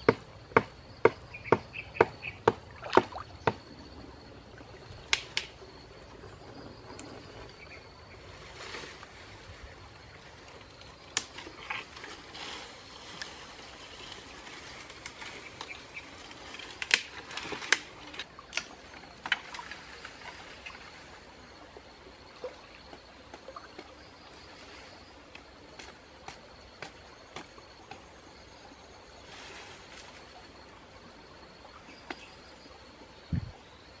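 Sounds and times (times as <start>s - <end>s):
leaves rustling: 6.8s - 21.4s, 29.2s - 30.6s
branches cracking and snapping: 11.1s - 12.3s, 14.1s - 20.1s.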